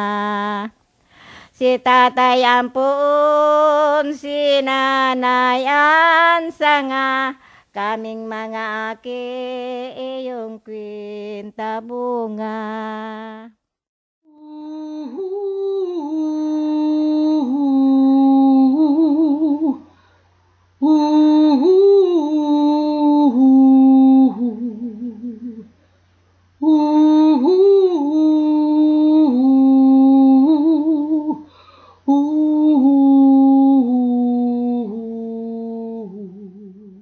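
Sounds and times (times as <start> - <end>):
person humming a melody: 14.3 - 19.9, 20.8 - 25.7, 26.6 - 31.5, 32.1 - 37.0.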